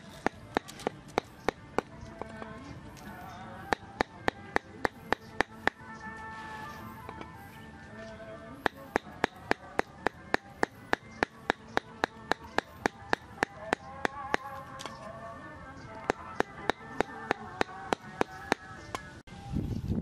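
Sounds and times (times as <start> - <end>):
cleaver chopping on wooden board: 0.2 - 2.5, 8.7 - 14.9.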